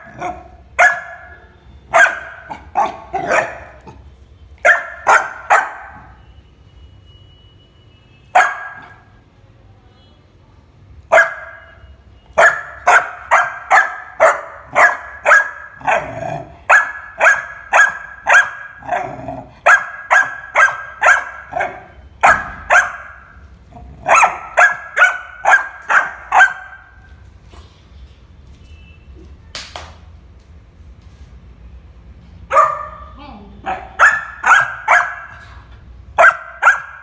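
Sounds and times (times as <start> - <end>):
puppy barking: 0.0 - 4.0, 4.6 - 6.2, 8.3 - 9.2, 11.1 - 23.4, 24.0 - 27.1, 32.5 - 37.0.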